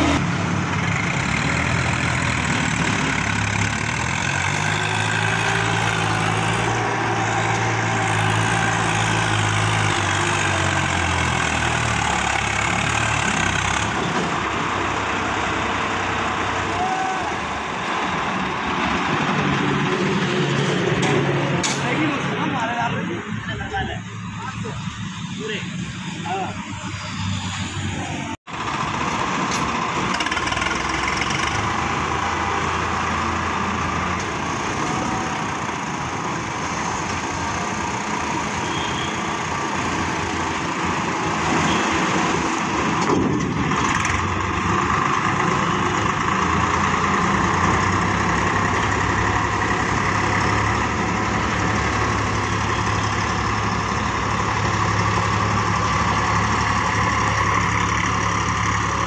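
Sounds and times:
tractor-trailer driving off: 0:00.0 - 0:59.0
tractor engine idling: 0:28.5 - 0:38.6, 0:43.6 - 0:59.0.

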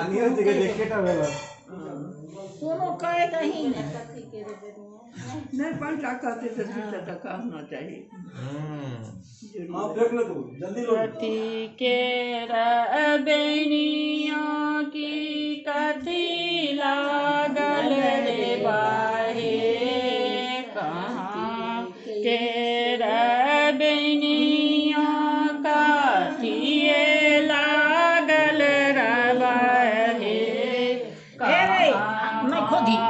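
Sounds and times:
person singing slow melody: 0:08.3 - 0:09.2.

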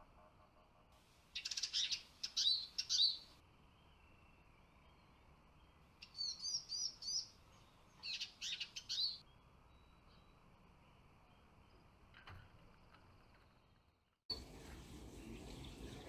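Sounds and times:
birds twittering and whistling: 0:01.4 - 0:11.9, 0:14.4 - 0:16.0.

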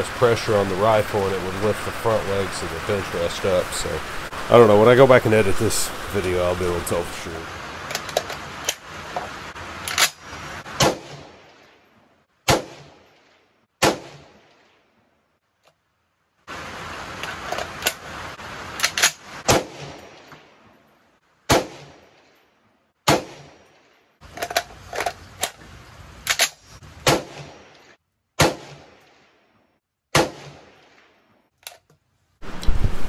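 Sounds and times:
magazine clacks: 0:07.8 - 0:10.2, 0:17.2 - 0:18.0, 0:18.8 - 0:19.2, 0:24.2 - 0:25.6, 0:26.2 - 0:26.7
rifle shots with echo: 0:10.8 - 0:11.8, 0:12.5 - 0:14.8, 0:19.5 - 0:20.5, 0:21.5 - 0:22.3, 0:23.1 - 0:23.9, 0:27.0 - 0:29.4, 0:30.1 - 0:31.2.

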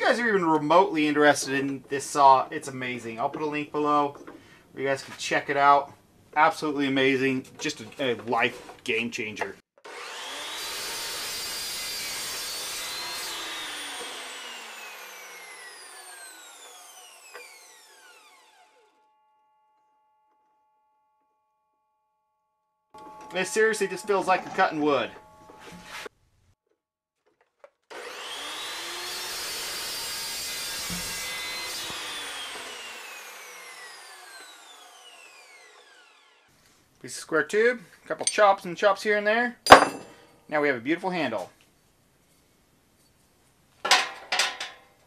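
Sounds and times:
chop saw cutting steel: 0:09.8 - 0:18.9, 0:27.9 - 0:36.4, 0:39.7 - 0:40.1
saw motor winding down: 0:09.9 - 0:19.0, 0:27.9 - 0:36.5
knock: 0:39.7 - 0:40.1.

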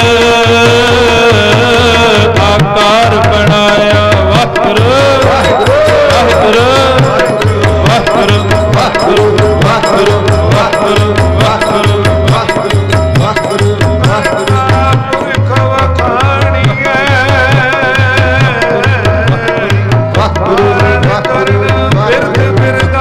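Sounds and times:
man singing a devotional hymn: 0:00.0 - 0:23.0
tabla beat with deep bass strokes: 0:00.0 - 0:23.0
held instrumental notes: 0:04.6 - 0:17.1.

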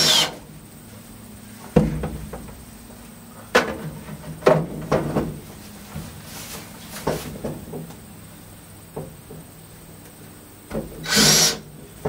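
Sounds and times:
knocks and clunks: 0:01.6 - 0:02.7, 0:03.5 - 0:06.2, 0:06.9 - 0:08.0, 0:10.7 - 0:12.0.

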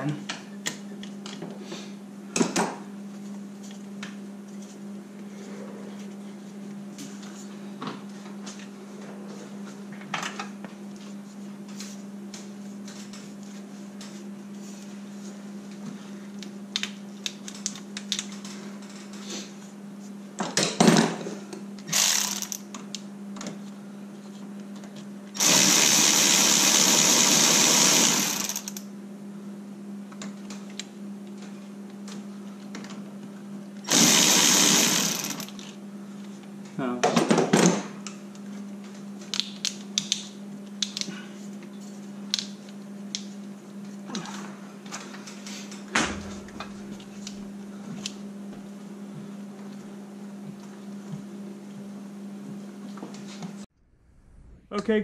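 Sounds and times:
cordless power tool running: 0:21.9 - 0:22.6, 0:25.4 - 0:28.8, 0:33.8 - 0:35.7
steady low hum: 0:37.9 - 0:55.0.

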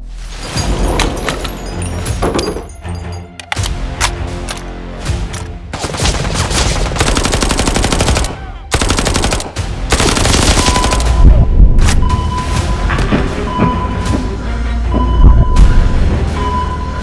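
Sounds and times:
rapid automatic gunfire: 0:05.7 - 0:11.3.

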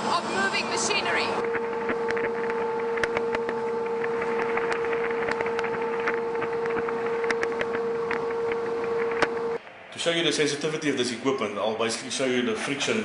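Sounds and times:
steady machinery hum: 0:00.0 - 0:13.0
crackling clicks: 0:01.4 - 0:09.6.

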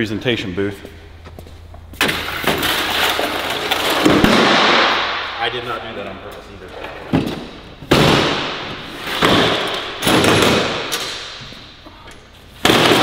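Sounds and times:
folding table thuds and clanks: 0:06.8 - 0:11.7, 0:12.5 - 0:13.0.

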